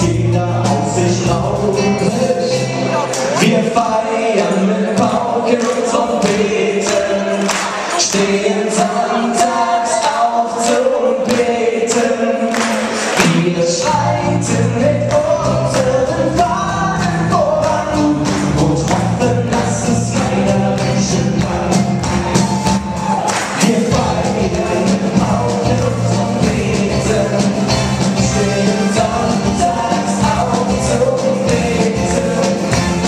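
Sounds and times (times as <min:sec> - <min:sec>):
bass guitar: 0:00.0 - 0:04.0, 0:13.2 - 0:33.0
steady drum beat: 0:00.0 - 0:33.0
voices singing: 0:00.0 - 0:33.0.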